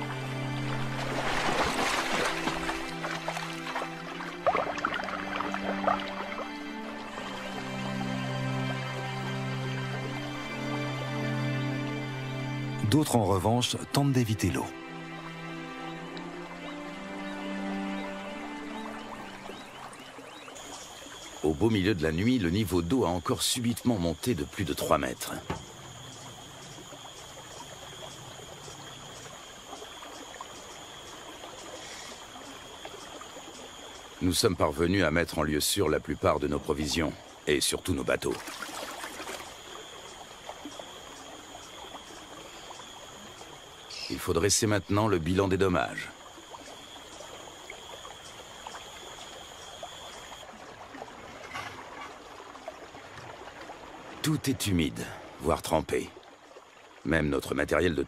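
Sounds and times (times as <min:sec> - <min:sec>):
high-pitched insect drone: 0:00.0 - 0:13.6, 0:20.6 - 0:50.4
river rushing: 0:00.0 - 0:21.7
river water rushing: 0:00.0 - 0:57.6.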